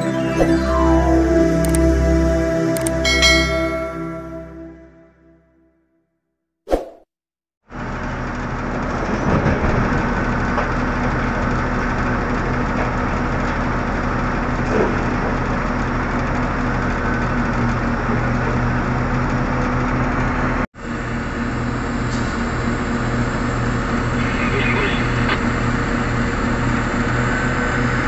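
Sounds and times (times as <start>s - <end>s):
heavy diesel engines humming: 7.8s - 28.0s.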